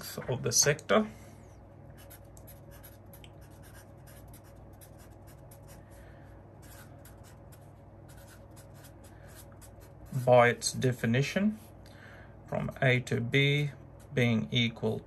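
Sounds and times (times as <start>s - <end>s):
marker writing on paper: 2.0s - 5.8s, 6.6s - 10.4s.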